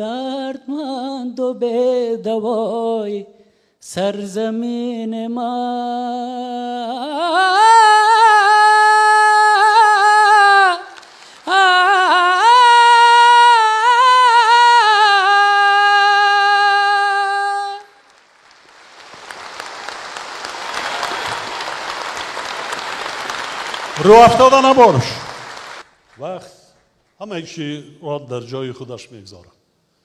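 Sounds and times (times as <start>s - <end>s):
audience applause: 10.9s - 11.5s, 17.8s - 26.4s.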